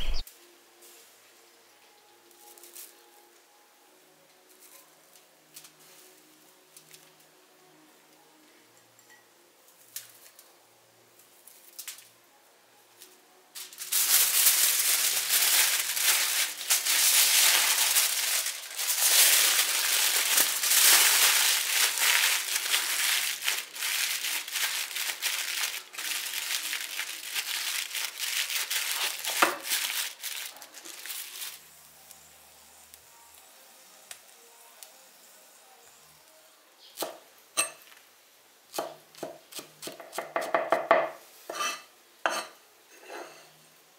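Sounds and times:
aluminium foil crinkling: 2.3 - 3.1, 4.5 - 7.3, 9.7 - 10.5, 11.2 - 12.2, 13.0 - 32.3.

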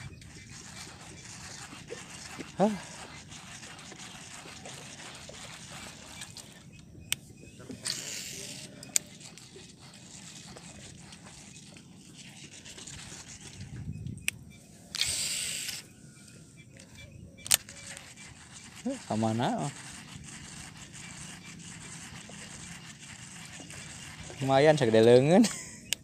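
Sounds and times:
fishing reel clicks: 7.8 - 11.3, 13.0 - 15.9, 16.8 - 24.6
brief hissing rushes: 15.0 - 15.9.

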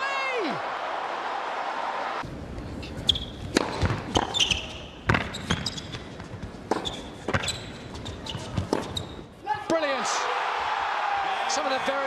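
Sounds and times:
shoes squeaking on court: 2.8 - 9.3
ball bouncing: 3.4 - 9.0
racquet striking ball: 3.5 - 7.6.

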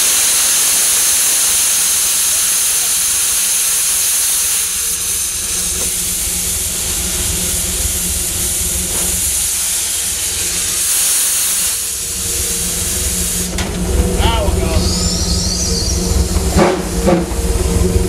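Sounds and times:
steam locomotive hissing: 0.0 - 18.0
low rumble: 12.0 - 18.0.

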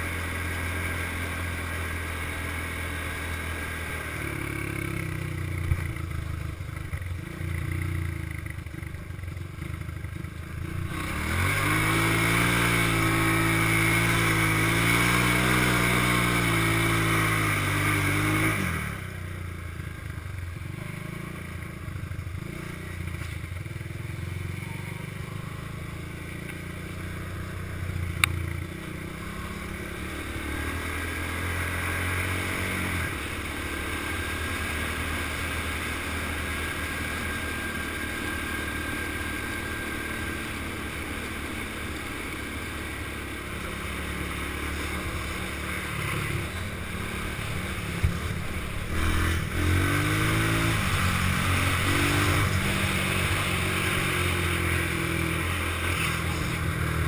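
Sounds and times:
all-terrain vehicle engine: 0.0 - 57.0.

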